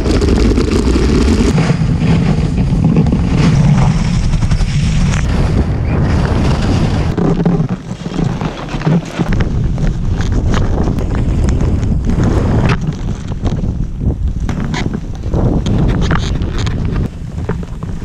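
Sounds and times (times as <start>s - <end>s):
skis scraping on snow: 0.0s - 5.3s, 6.2s - 13.4s
wind rumbling on microphone: 0.0s - 18.0s.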